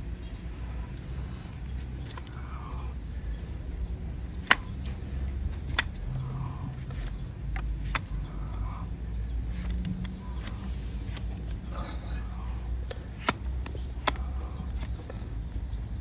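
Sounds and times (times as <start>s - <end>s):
hoof knife cutting clicks: 4.3s - 11.9s, 12.8s - 15.2s.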